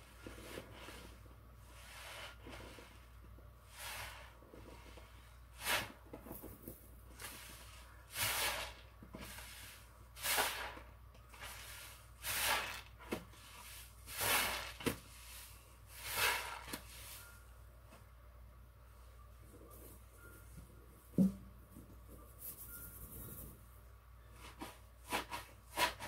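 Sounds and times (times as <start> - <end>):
sponge squelching: 11.4 - 17.1.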